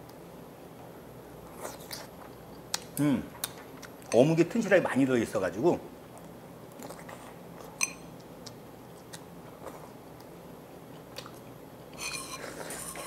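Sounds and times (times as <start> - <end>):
man chewing: 1.4 - 4.1, 6.2 - 11.6.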